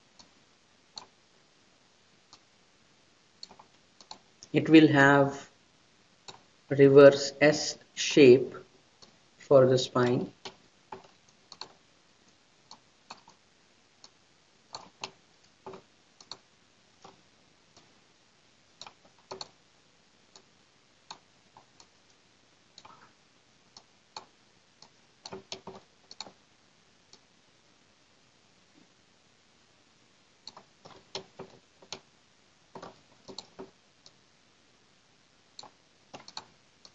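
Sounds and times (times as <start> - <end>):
computer mouse clicks: 0.9 - 1.1, 3.4 - 4.5, 6.3 - 6.5, 10.4 - 13.4, 14.0 - 16.4, 17.0 - 17.9, 18.8 - 19.6, 22.8 - 23.1, 23.7 - 26.4, 30.4 - 32.0, 32.7 - 34.2, 35.6 - 36.9.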